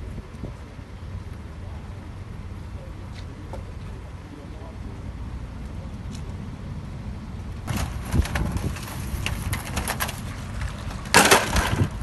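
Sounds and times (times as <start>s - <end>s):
wind rumbling on microphone: 0.0s - 2.7s, 4.9s - 12.0s
debris rustling and knocking: 7.7s - 12.0s
loud scrape of debris: 7.7s - 12.0s.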